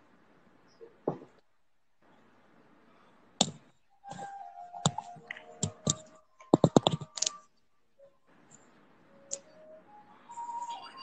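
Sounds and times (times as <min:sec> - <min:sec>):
sharp clicks and knocks: 0:03.4 - 0:07.4.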